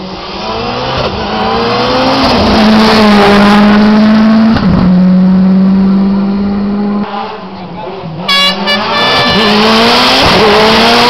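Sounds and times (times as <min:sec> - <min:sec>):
race car passing at full throttle: 0:00.0 - 0:11.0.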